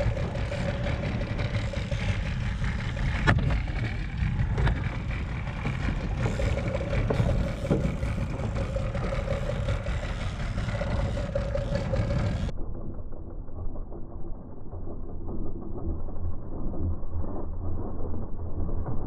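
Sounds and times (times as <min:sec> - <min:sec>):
water rushing past hull: 0:00.0 - 0:12.5
outboard motor running: 0:00.0 - 0:19.0.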